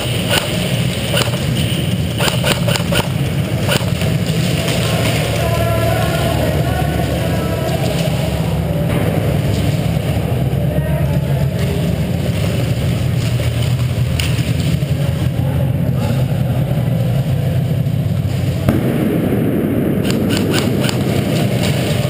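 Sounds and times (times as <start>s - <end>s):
airsoft guns firing: 0.0s - 7.4s, 18.7s - 22.0s
low rumble: 0.0s - 22.0s.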